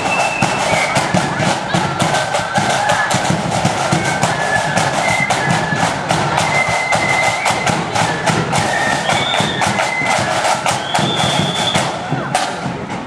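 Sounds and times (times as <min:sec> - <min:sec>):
flutes playing high melody: 0:00.0 - 0:12.2
booming bass drum: 0:00.0 - 0:13.0
rapid snare drum strokes: 0:00.0 - 0:13.0.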